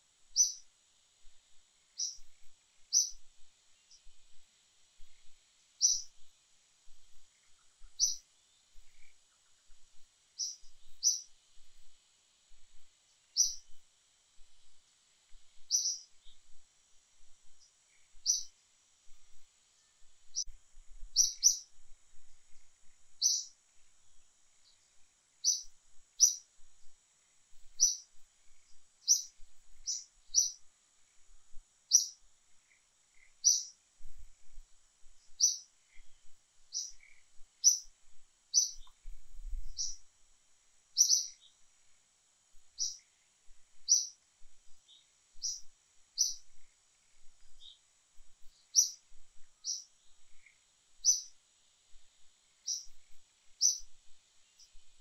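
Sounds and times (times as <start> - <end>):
faint high hiss: 0.0 - 55.0
bird chirping: 0.3 - 0.7, 2.0 - 4.2, 5.0 - 6.3, 6.9 - 9.8, 10.4 - 11.4, 13.3 - 13.8, 15.5 - 16.6, 17.4 - 18.5, 19.3 - 21.8, 22.8 - 23.6, 24.5 - 26.5, 27.6 - 31.3, 31.9 - 33.8, 35.2 - 37.9, 38.5 - 40.0, 40.9 - 41.6, 42.7 - 43.2, 43.8 - 51.4, 52.5 - 55.0.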